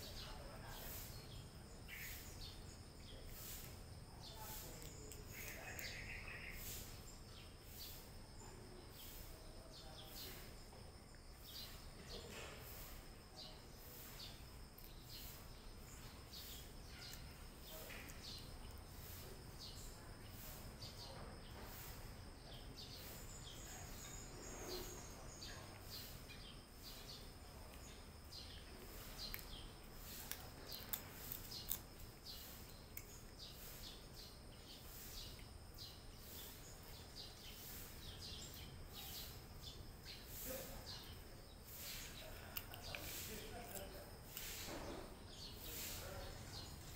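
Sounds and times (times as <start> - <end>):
bird chirping: 0.0 - 46.9
cats crunching food: 4.5 - 6.9, 25.6 - 33.8, 41.1 - 44.8.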